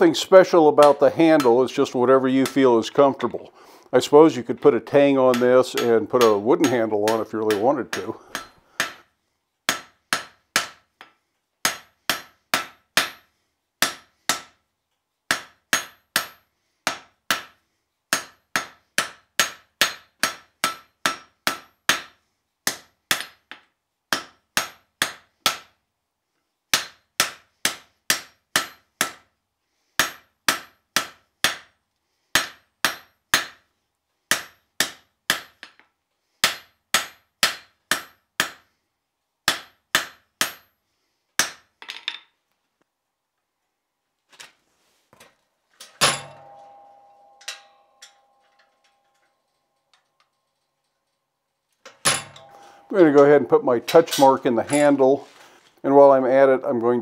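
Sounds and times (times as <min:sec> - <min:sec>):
hammer striking steel on anvil: 0:05.3 - 0:09.0, 0:09.7 - 0:10.8, 0:11.6 - 0:14.5, 0:15.3 - 0:23.5, 0:24.1 - 0:25.7, 0:26.7 - 0:29.2, 0:30.0 - 0:31.7, 0:32.4 - 0:33.6, 0:34.3 - 0:35.8, 0:36.4 - 0:38.7, 0:39.5 - 0:40.7, 0:41.4 - 0:41.7, 0:46.0 - 0:50.6, 0:51.9 - 0:55.1.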